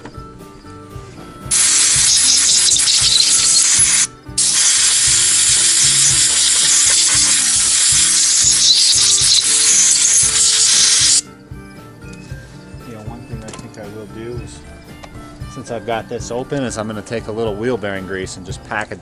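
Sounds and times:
compressed air hose hissing: 1.5s - 11.2s.

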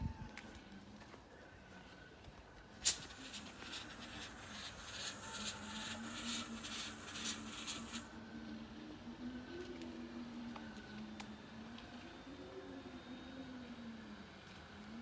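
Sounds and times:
fog machine pulsing hiss: 2.8s - 9.2s.

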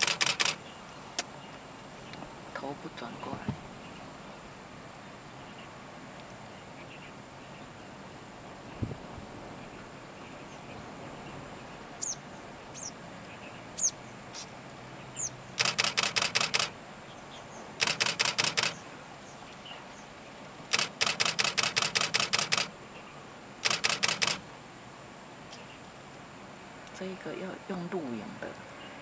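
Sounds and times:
camera shutter clicking: 0.0s - 0.6s, 15.6s - 16.7s, 17.8s - 18.8s, 20.7s - 22.7s, 23.6s - 24.4s
bird chirping: 9.6s - 24.4s.

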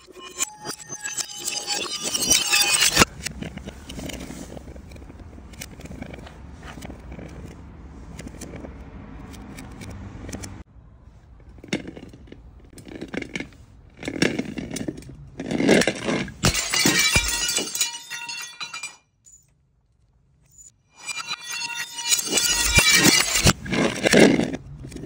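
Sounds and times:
glass jar shattering: 0.2s - 3.1s, 16.0s - 19.0s, 21.0s - 23.7s
glass shards clinking and scattering: 0.2s - 3.1s, 16.4s - 19.0s, 21.0s - 23.7s
glass jar knocking down steps: 16.0s - 19.0s.

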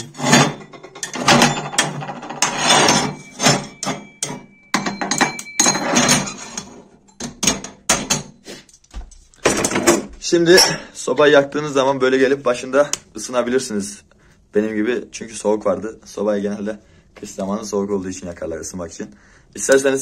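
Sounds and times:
metal clanks and scrapes: 0.0s - 10.9s.

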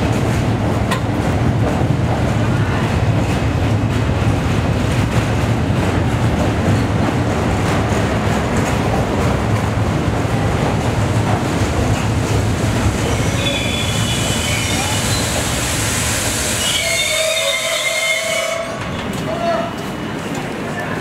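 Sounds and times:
train rolling rumble: 0.0s - 21.0s
brake and wheel squeals: 13.0s - 15.4s.

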